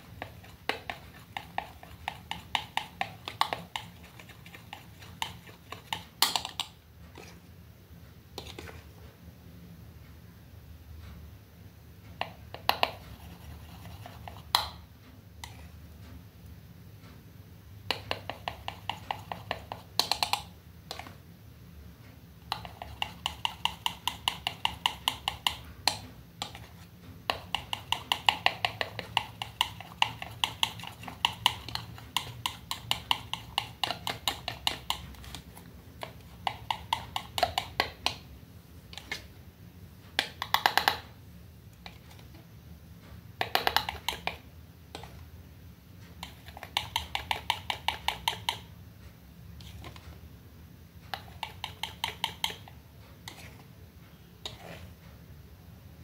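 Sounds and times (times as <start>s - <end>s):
palette knife scraping plastic palette: 0.1s - 7.4s, 8.4s - 8.9s, 51.1s - 53.7s, 54.4s - 55.0s.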